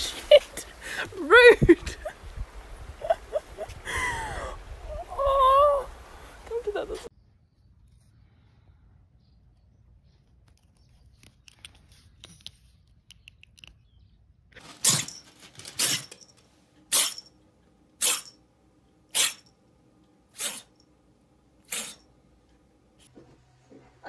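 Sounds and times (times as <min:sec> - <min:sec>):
kitten sneezing: 0:19.1 - 0:19.4, 0:20.3 - 0:20.8, 0:21.7 - 0:22.0.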